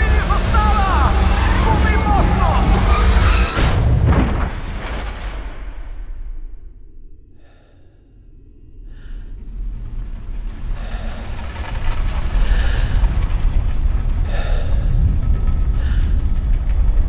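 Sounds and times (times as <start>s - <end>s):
deep muffled rumble: 8.9s - 17.0s
high ringing tone: 12.6s - 17.0s.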